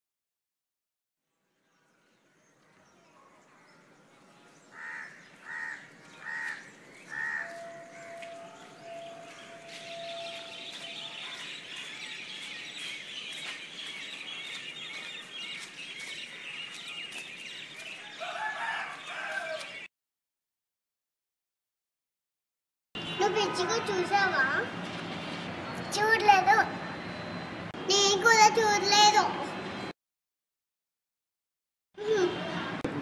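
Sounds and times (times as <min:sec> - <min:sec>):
small birds chirping chorus: 0:01.4 - 0:19.9.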